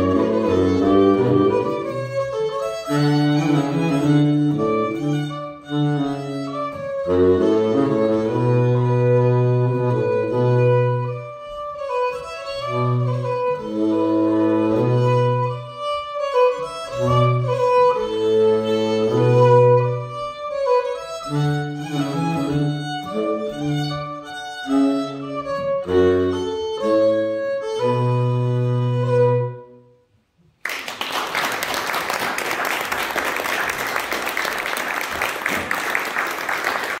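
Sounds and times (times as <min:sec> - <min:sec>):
baritone saxophone bass line: 0:00.0 - 0:30.0
fiddle playing folk tune: 0:00.0 - 0:30.0
audience applause: 0:30.6 - 0:37.0.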